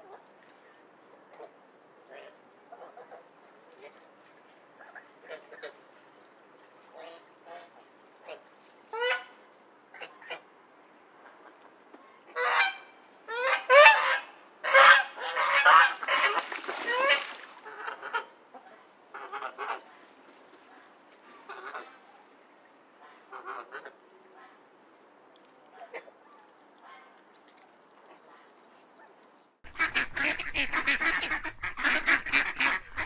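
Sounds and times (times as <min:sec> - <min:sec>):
ducks quacking: 0:12.3 - 0:19.8, 0:29.7 - 0:33.0.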